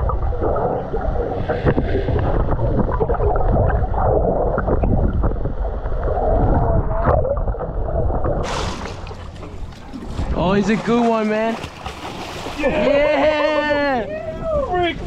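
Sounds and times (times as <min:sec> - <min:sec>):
deep underwater rumble: 0:00.0 - 0:10.6.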